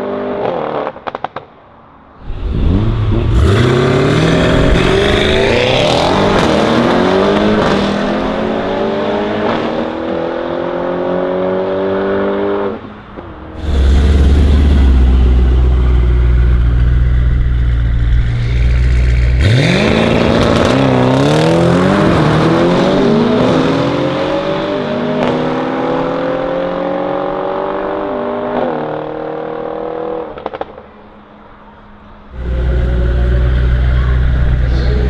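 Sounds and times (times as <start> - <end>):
car engine revving through gears: 2.2 - 12.8, 13.6 - 30.6, 32.4 - 35.0
low engine rumble: 13.4 - 19.6, 32.3 - 35.0.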